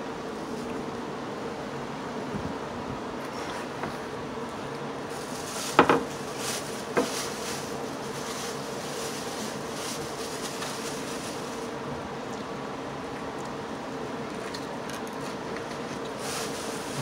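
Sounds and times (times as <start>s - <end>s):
steady background hum: 0.0s - 17.0s
faint rustles: 5.1s - 11.7s, 16.2s - 17.0s.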